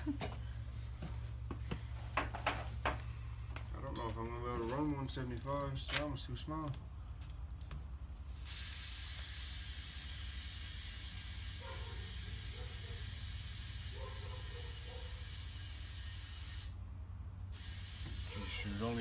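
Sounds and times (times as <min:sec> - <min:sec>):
air hissing through tire inflator: 0:08.2 - 0:16.8, 0:17.5 - 0:19.0.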